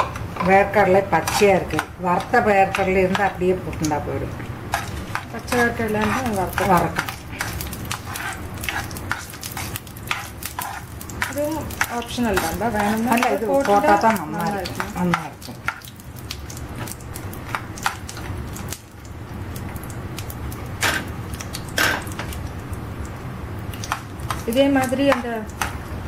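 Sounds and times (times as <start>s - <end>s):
spatula scraping pan: 0.0s - 3.6s, 4.7s - 16.0s, 20.8s - 22.4s
peanuts sizzling in pan: 0.5s - 26.0s
person speaking: 11.3s - 15.4s.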